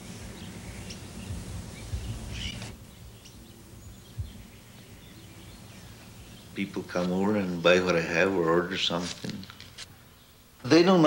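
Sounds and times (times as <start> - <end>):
faint bird chirps: 0.0 - 7.9.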